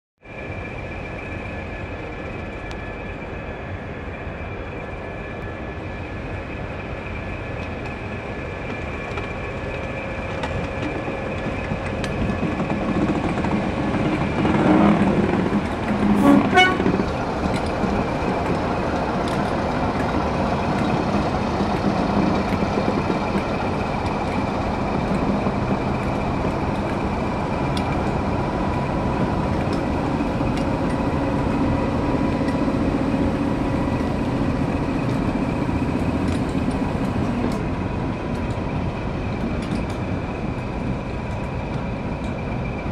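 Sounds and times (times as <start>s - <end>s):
diesel locomotive engine working: 0.2s - 42.9s
locomotive horn toot: 16.0s - 17.0s.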